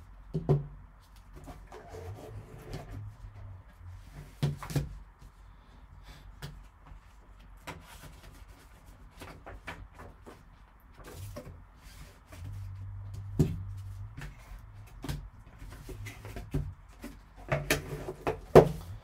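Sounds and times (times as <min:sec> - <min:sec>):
taps and knocks on cardboard: 0:00.3 - 0:00.7, 0:13.1 - 0:18.9.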